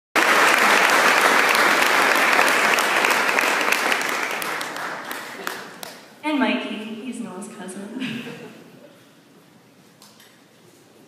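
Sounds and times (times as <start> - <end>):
audience applauding: 0.2 - 6.1.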